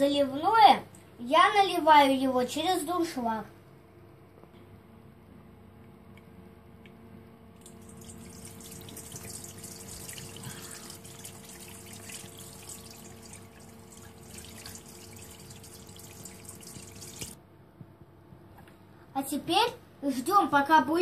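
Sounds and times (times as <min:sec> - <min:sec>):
broth pouring through colander: 0:07.6 - 0:17.4.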